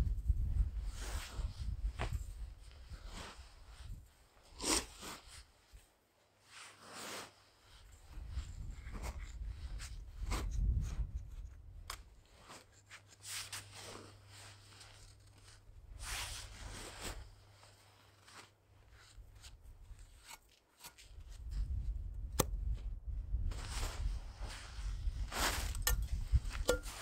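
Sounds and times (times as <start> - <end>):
hands packing snow: 12.2 - 21.3, 23.5 - 27.0.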